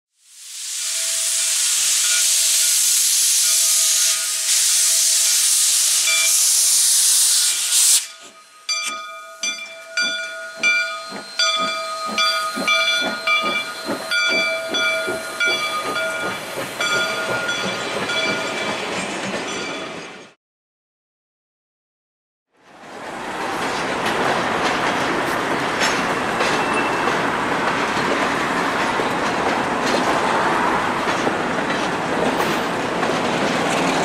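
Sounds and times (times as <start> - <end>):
steam hissing: 0.2 - 8.6, 10.2 - 18.5
steam locomotive exhaust chuffs: 0.2 - 19.2.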